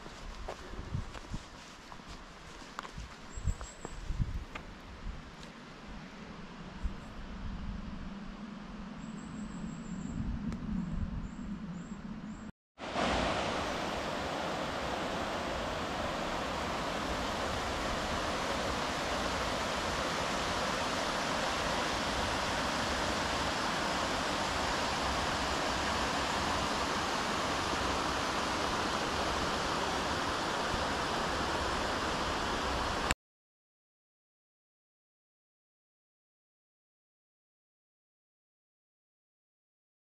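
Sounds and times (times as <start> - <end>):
stream rushing over stones: 12.8 - 33.1.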